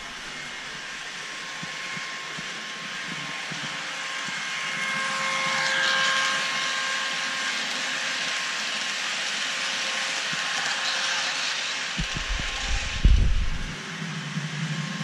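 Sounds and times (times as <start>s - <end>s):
model train running past: 0.0s - 15.0s
faint whining tones: 12.0s - 13.8s.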